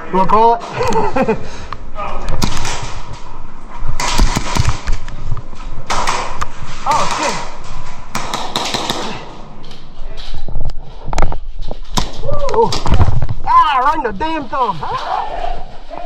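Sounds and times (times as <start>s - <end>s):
airsoft pistols firing: 2.3s - 3.0s, 4.0s - 4.9s, 5.9s - 9.4s.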